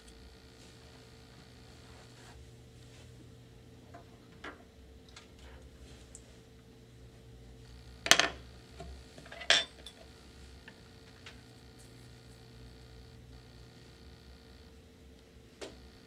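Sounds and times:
tools clattering on a table: 0:08.1 - 0:08.4, 0:09.2 - 0:10.0.

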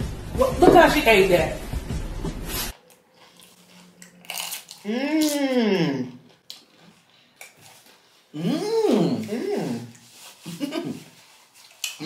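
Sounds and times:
chips crunching in mouth: 0:03.0 - 0:05.6
person humming mmm: 0:04.7 - 0:06.4, 0:08.3 - 0:11.2.

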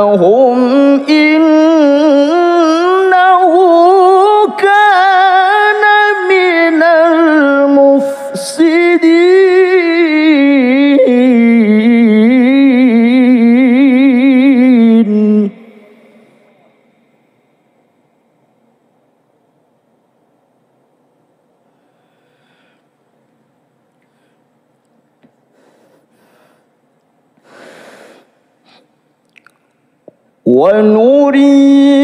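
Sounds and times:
man reciting melodically: 0:00.0 - 0:17.0, 0:30.4 - 0:32.0.

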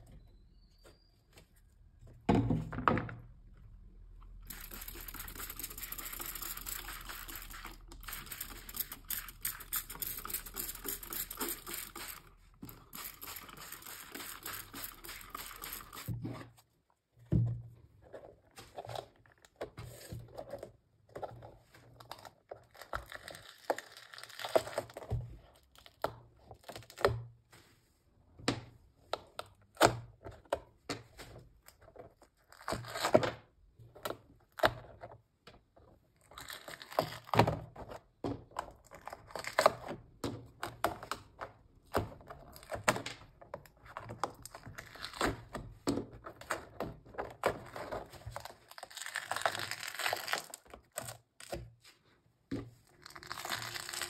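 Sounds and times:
paint pieces crackling and tearing: 0:22.3 - 0:25.0, 0:47.5 - 0:51.6, 0:52.9 - 0:54.0.

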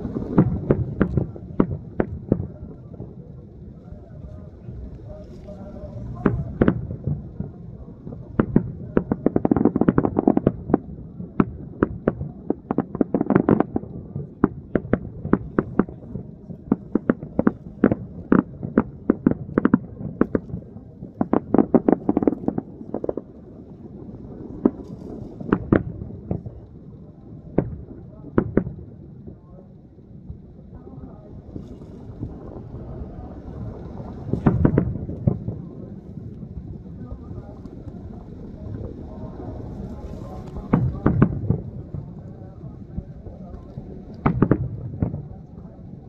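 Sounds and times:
explosive bangs and cracks: 0:34.3 - 0:35.6, 0:40.5 - 0:42.1, 0:44.1 - 0:45.3.

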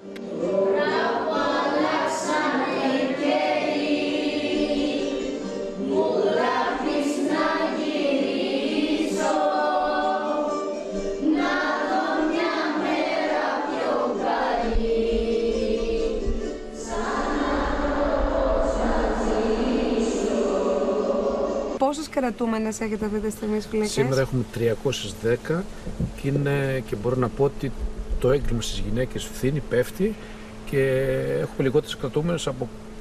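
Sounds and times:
choir singing: 0:00.0 - 0:21.8, 0:23.8 - 0:24.4.

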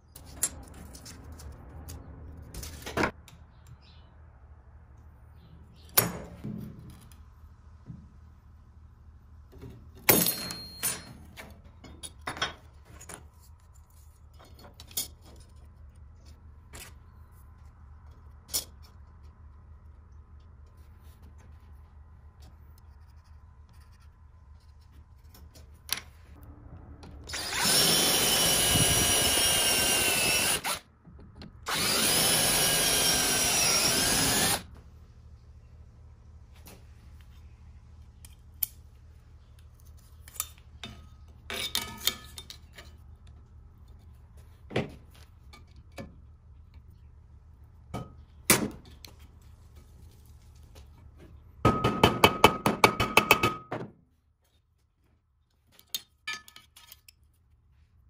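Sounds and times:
power drill drilling through metal: 0:27.3 - 0:30.8, 0:31.7 - 0:34.7.

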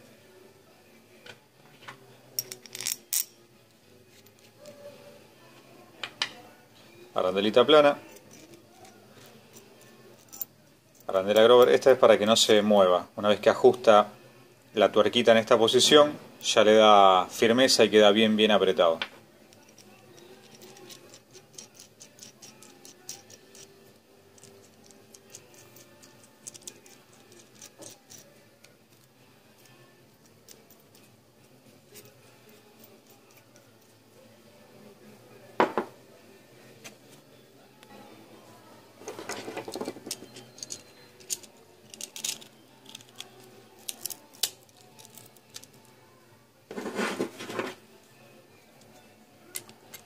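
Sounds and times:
pliers clinking on metal: 0:02.4 - 0:03.4, 0:19.5 - 0:23.8, 0:24.4 - 0:28.4, 0:39.3 - 0:45.9
scraping rustle: 0:46.7 - 0:47.8.

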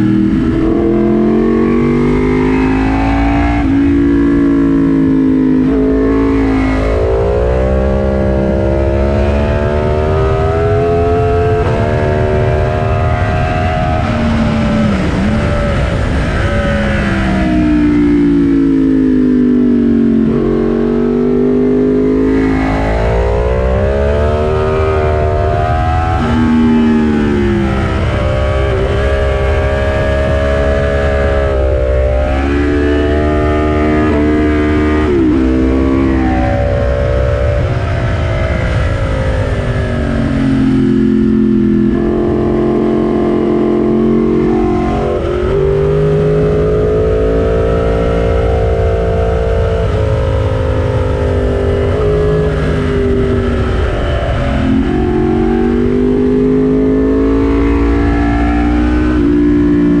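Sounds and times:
motorcycle engine running hard: 0:00.0 - 1:00.0
wind rumble on microphone: 0:00.0 - 1:00.0.

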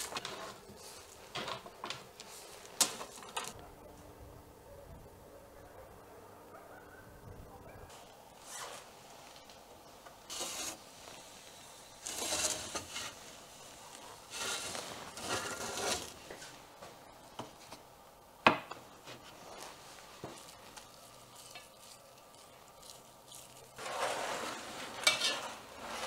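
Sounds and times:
metal scraping: 0:12.0 - 0:13.4, 0:14.2 - 0:16.4, 0:23.3 - 0:26.0.

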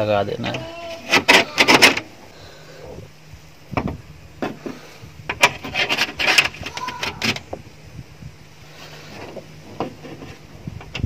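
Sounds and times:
metal rod scraping through hinges: 0:05.3 - 0:07.4.

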